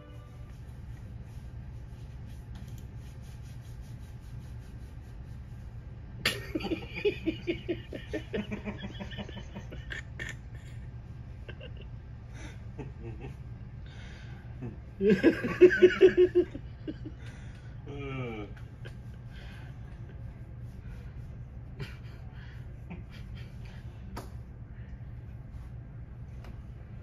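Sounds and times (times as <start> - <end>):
low steady hum: 0.0 - 27.0
person laughing: 6.2 - 10.8, 11.4 - 13.4, 14.6 - 17.2.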